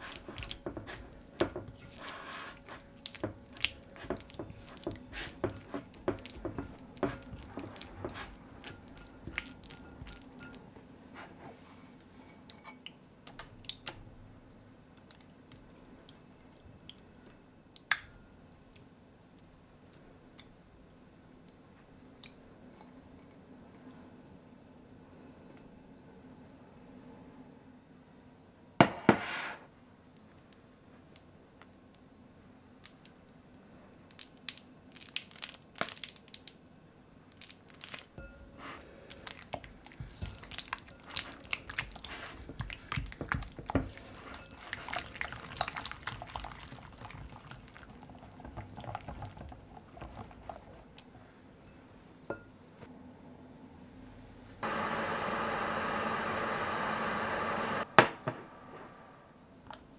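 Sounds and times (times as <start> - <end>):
spatula mixing in glass bowl: 0.0 - 10.6, 38.2 - 50.9
microwave oven whirring: 54.6 - 57.9.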